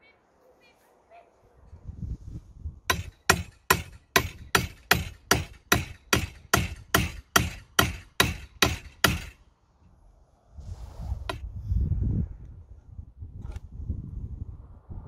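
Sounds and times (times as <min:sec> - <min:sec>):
hand hammer striking: 0:02.9 - 0:09.4.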